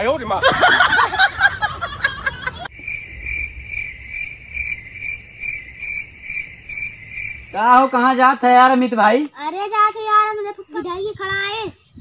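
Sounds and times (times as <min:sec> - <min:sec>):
people talking and chuckling: 0:00.1 - 0:02.7
cricket chirping: 0:00.7 - 0:12.0.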